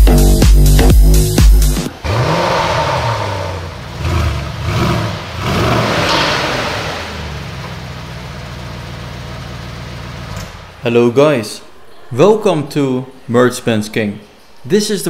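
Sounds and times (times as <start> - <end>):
car engine idling: 1.2 - 10.8
car engine revving: 1.2 - 10.8.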